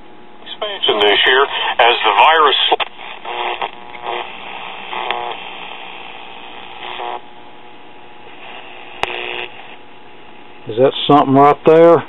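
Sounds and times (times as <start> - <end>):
radio stations tuning past: 0.4 - 7.3, 8.2 - 9.8
radio static hiss: 0.4 - 12.0.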